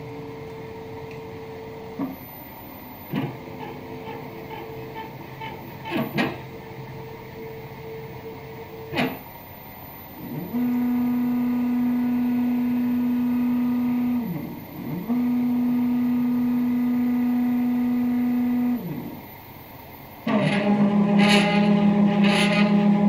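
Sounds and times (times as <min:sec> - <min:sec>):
stepper motors whining: 0:10.1 - 0:23.0.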